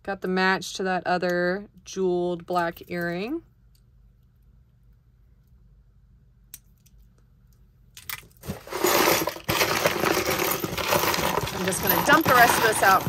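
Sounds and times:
jewelry rattling in cardboard box: 8.4s - 13.0s.

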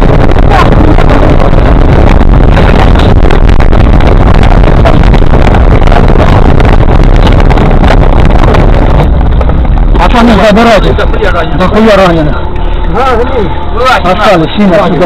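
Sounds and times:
vehicle engine and road noise: 0.0s - 15.0s
knocks and rattles in cab: 2.2s - 10.4s.

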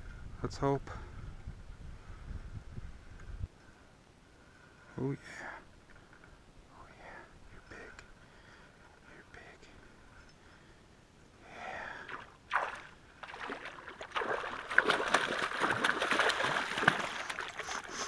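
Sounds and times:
fish splashing in water: 12.1s - 18.0s.

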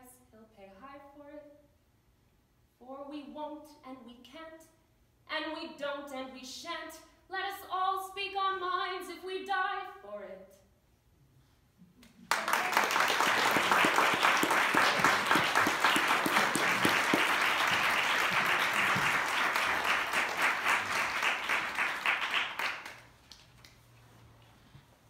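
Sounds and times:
audience applauding: 12.2s - 23.6s.

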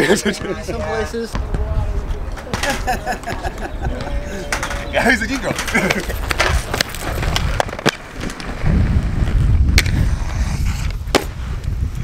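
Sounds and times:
skate wheels rolling on concrete: 0.3s - 12.0s
skates clacking on concrete: 4.1s - 8.6s.

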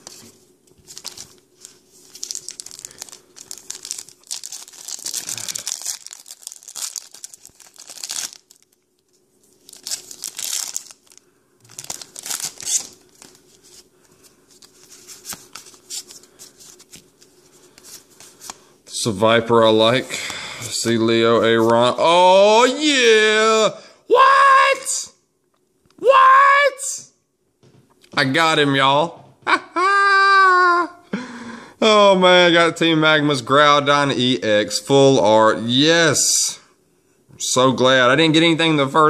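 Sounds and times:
foil wrappers crinkling and tearing: 0.8s - 18.6s.

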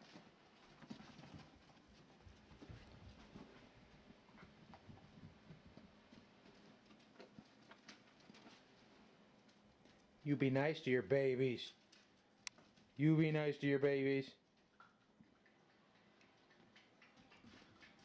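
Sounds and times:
puppies scuffling on carpet: 0.0s - 10.2s.

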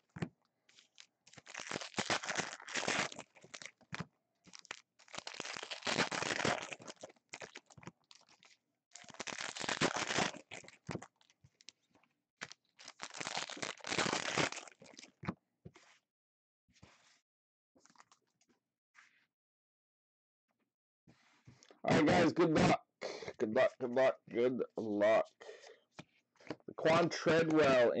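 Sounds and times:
foil wrappers crinkling: 0.7s - 11.8s, 12.4s - 15.1s.

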